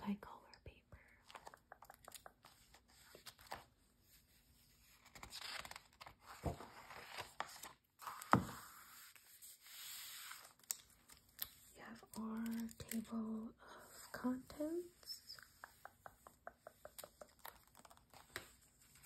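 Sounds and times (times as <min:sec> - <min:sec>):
magazine pages rustling: 0:01.3 - 0:13.2, 0:16.8 - 0:19.0.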